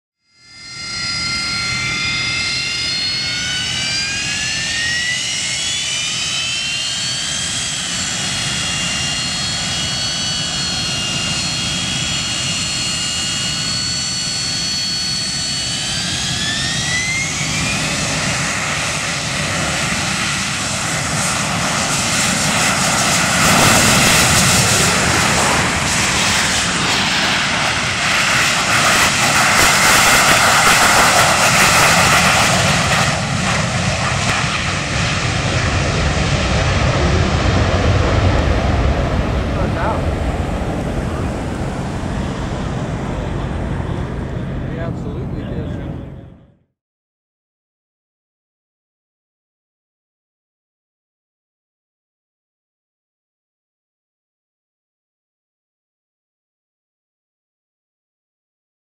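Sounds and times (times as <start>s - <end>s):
jet engine whine: 0.2s - 46.8s
loud jet roar: 0.4s - 46.7s.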